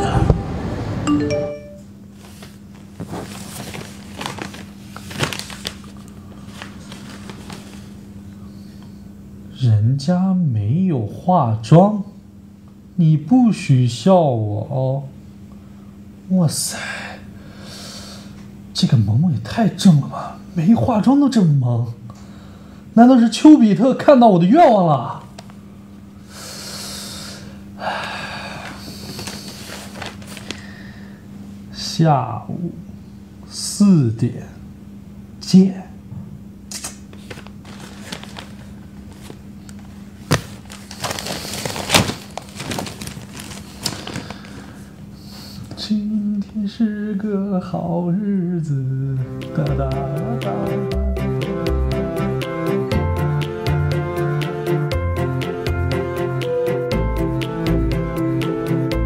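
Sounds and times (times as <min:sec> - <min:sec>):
low steady hum: 0:00.0 - 0:51.4
newspaper rustling: 0:02.2 - 0:08.1, 0:28.8 - 0:30.7, 0:37.1 - 0:44.8.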